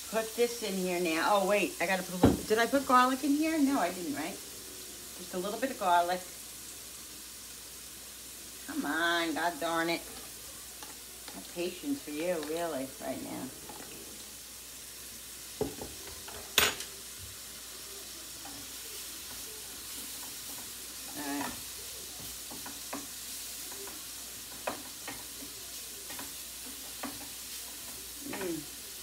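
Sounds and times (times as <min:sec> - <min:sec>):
food sizzling in frying pans: 0:00.0 - 0:29.0
spatula scraping pan: 0:18.3 - 0:28.7.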